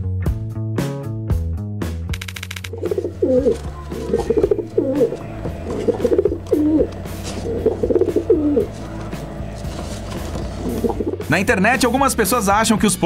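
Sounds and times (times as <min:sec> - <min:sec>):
pigeon cooing: 0:02.7 - 0:11.3
quiet background music: 0:02.7 - 0:13.0.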